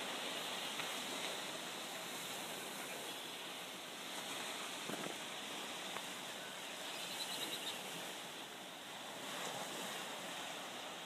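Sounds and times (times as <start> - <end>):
small waves washing onto shore: 0.0 - 11.0.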